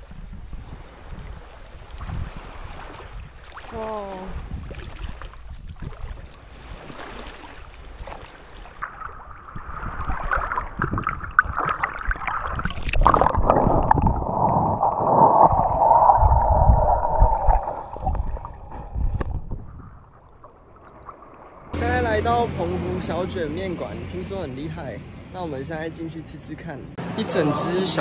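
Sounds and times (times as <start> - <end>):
sea water sloshing and gurgling: 0.7 - 21.8.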